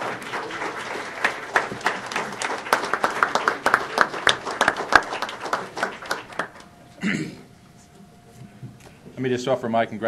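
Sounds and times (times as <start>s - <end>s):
small audience applauding: 0.0s - 7.0s.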